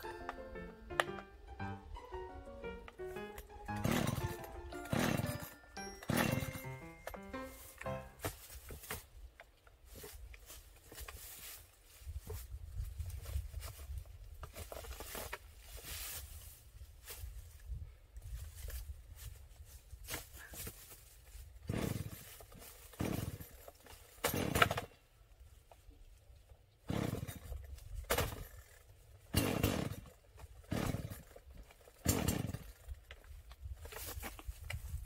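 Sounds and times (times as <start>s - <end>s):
chainsaw engine turning over: 0.0s - 8.2s, 21.6s - 25.0s, 26.9s - 34.0s
chainsaw starter cord rips: 3.2s - 8.2s, 21.6s - 25.0s, 26.8s - 34.9s.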